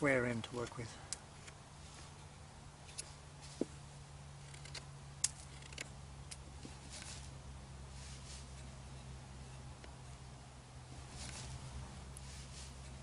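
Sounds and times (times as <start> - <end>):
steady low hum: 0.0 - 13.0
knife cutting wood: 4.4 - 7.4.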